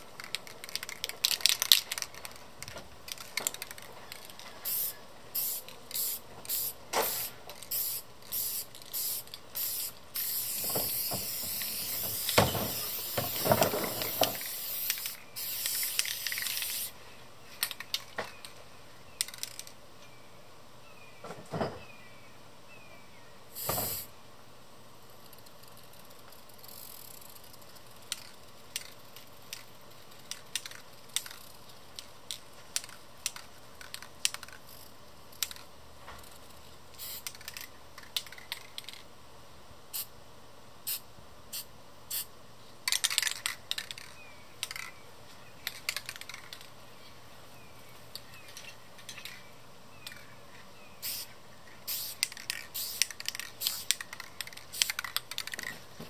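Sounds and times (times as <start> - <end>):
aerosol spray paint spurts: 3.1 - 16.9, 51.0 - 55.6.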